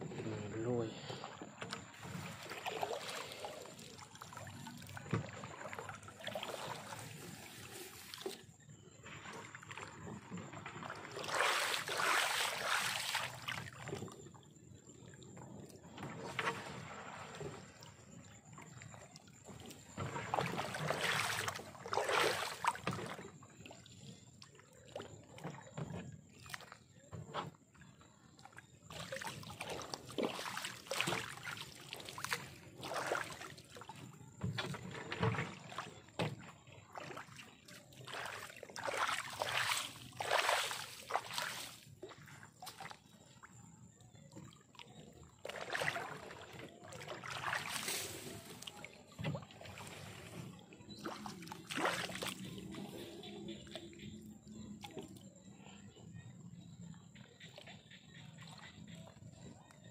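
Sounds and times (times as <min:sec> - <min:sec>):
pond water sloshing and splashing: 0:00.0 - 0:59.9.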